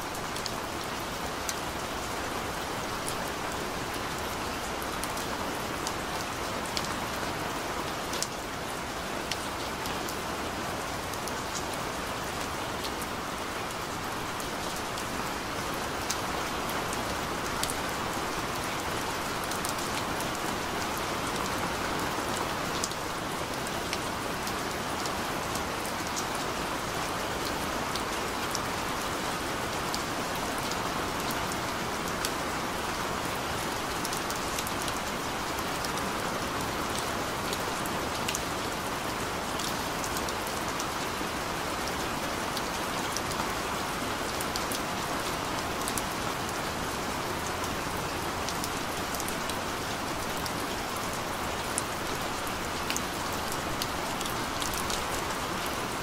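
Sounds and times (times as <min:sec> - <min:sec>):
gentle rain hiss: 0:00.0 - 0:56.0.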